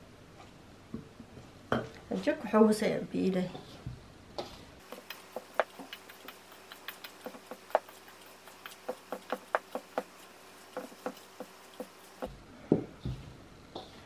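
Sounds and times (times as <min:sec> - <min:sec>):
hands mixing grain in a bowl: 0:04.8 - 0:12.3.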